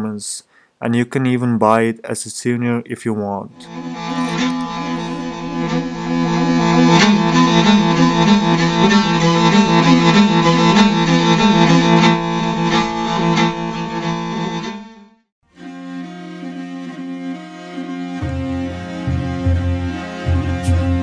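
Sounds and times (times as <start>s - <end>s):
bowed fiddle melody over drone: 3.6s - 14.8s, 15.5s - 21.0s
sustained bowed string: 3.6s - 14.8s, 15.6s - 21.0s.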